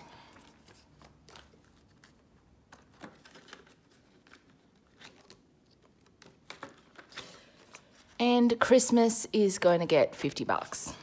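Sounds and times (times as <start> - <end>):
paper rustling and tapping: 0.4 - 7.9.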